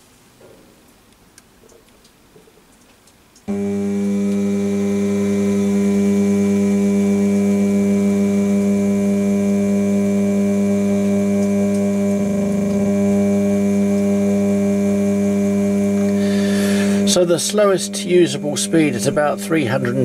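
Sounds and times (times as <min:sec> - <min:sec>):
electric motor humming: 0:03.5 - 0:20.0.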